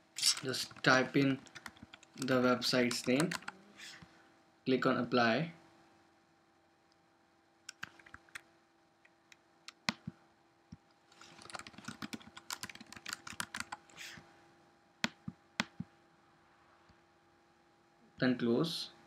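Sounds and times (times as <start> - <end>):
faint steady hum: 0.0 - 19.0
typing on computer keyboard: 0.2 - 3.6, 7.7 - 8.4, 11.2 - 13.8.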